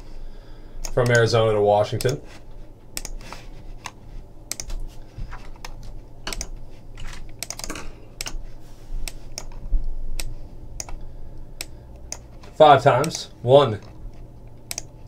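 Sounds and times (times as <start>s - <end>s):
low electrical hum: 0.0s - 15.0s
keyboard taps and mouse clicks: 3.8s - 8.4s.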